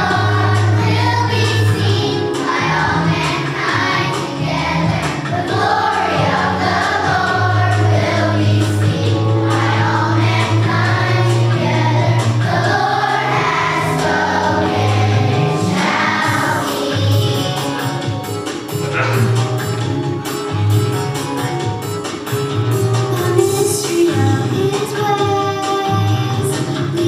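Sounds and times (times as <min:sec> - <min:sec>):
children's choir singing: 0:00.0 - 0:18.2
instrumental accompaniment: 0:00.0 - 0:27.0.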